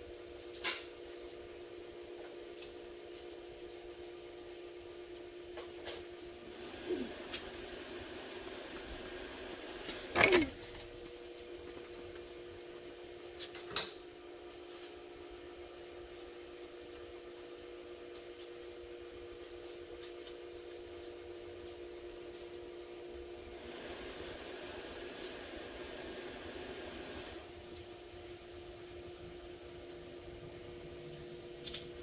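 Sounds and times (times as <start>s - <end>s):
repair shop hum: 6.4s - 11.2s, 23.4s - 27.7s.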